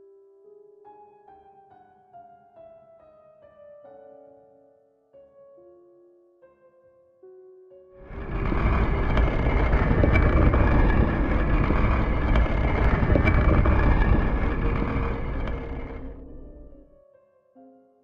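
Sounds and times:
deep rushing noise: 8.0 - 16.9.

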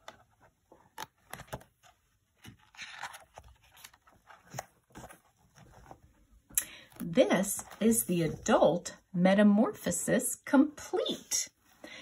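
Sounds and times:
book page turning: 0.0 - 6.1.

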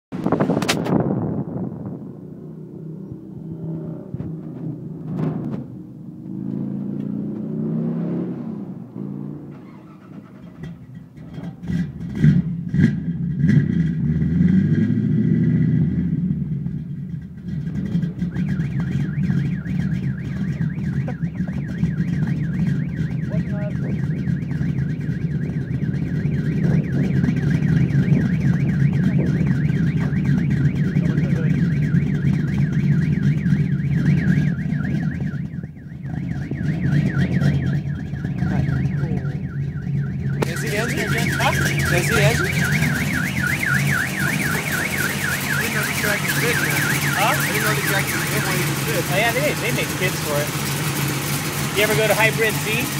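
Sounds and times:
engine revving: 0.1 - 52.9
rough engine idle: 16.6 - 52.9.

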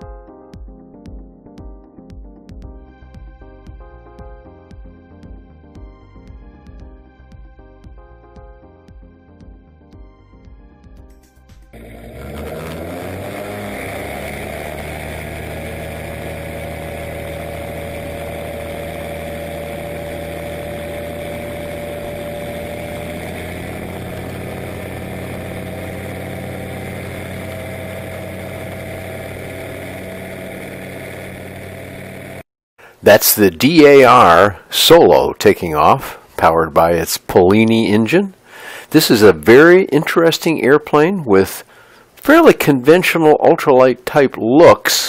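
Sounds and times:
ultralight aircraft engine and propeller: 11.8 - 32.5.

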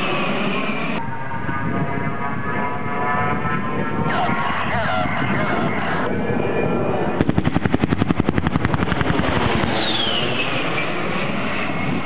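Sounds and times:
jet engines whining: 0.0 - 2.5, 4.0 - 12.0
rapid pyrotechnic charges: 7.2 - 11.1.

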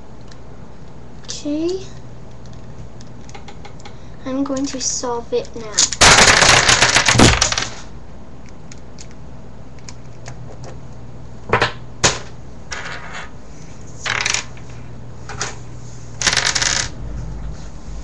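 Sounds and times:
sharp clicks of loose pieces: 0.2 - 4.8, 8.4 - 11.0
plastic pieces clattering on table: 5.7 - 7.9, 14.0 - 14.6, 16.2 - 16.9.

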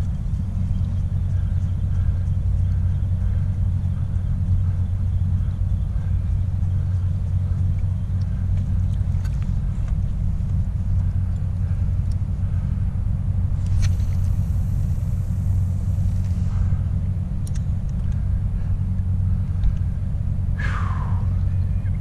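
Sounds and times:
kayak rumbling through water: 0.0 - 17.2.

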